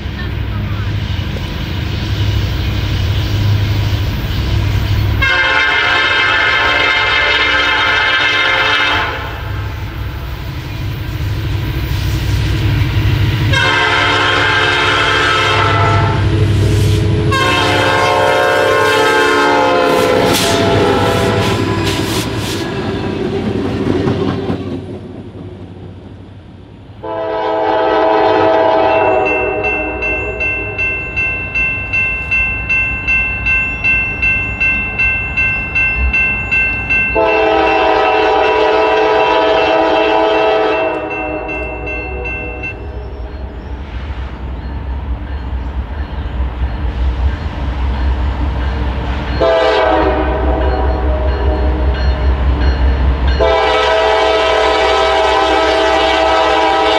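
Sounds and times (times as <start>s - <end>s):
train rumbling on rails: 0.0s - 56.9s
locomotive air horn blasts: 5.2s - 9.6s, 13.5s - 22.4s, 27.0s - 30.7s, 37.2s - 42.8s, 49.4s - 51.9s, 53.4s - 56.9s
locomotive bell ringing: 28.6s - 38.8s, 40.4s - 43.7s, 44.6s - 54.5s.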